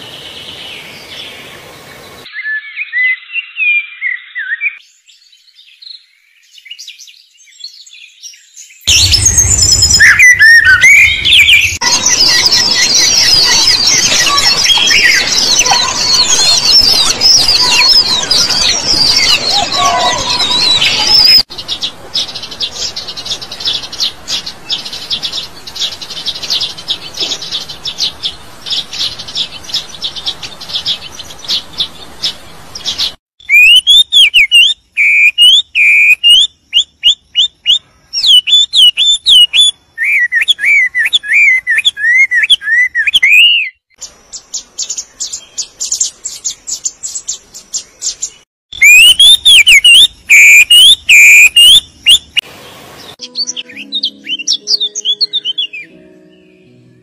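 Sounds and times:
birds chirping rapidly: 0.0 - 57.0
birds whistling sliding notes: 8.9 - 21.5, 48.0 - 52.4.

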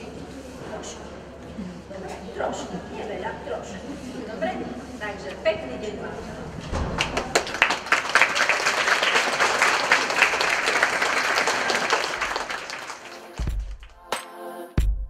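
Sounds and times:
children applauding: 7.0 - 14.0.

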